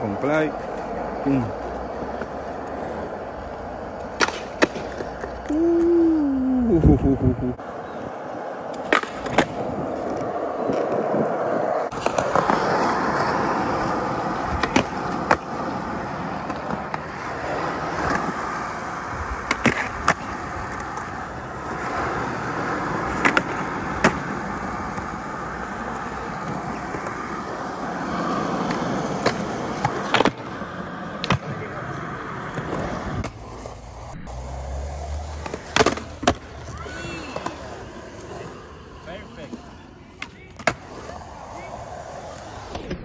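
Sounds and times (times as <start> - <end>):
skateboard wheels rolling on concrete: 0.0 - 43.0
skateboard deck clacks: 3.9 - 5.9, 8.6 - 18.7, 19.4 - 31.7, 39.5 - 41.1.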